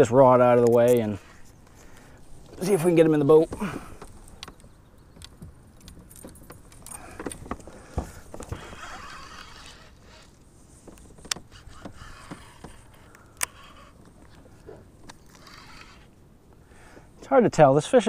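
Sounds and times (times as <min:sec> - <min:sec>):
fishing gear clicking and tapping: 0:00.6 - 0:09.8, 0:10.8 - 0:15.5.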